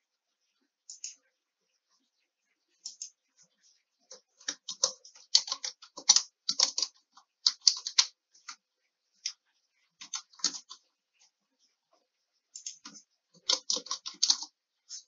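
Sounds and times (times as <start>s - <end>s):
computer keyboard typing: 4.1s - 8.6s, 10.0s - 10.8s, 12.6s - 15.0s.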